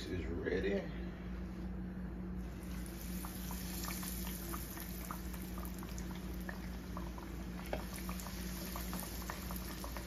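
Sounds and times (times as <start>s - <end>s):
fish sizzling in frying oil: 2.4s - 10.0s.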